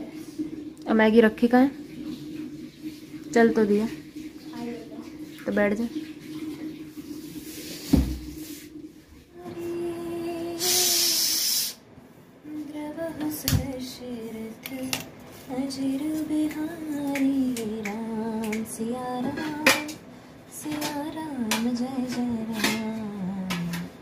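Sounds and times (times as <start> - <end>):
loud hiss: 10.6 - 11.8
kitchen utensils and bowls clinking: 19.2 - 20.0, 20.6 - 23.9.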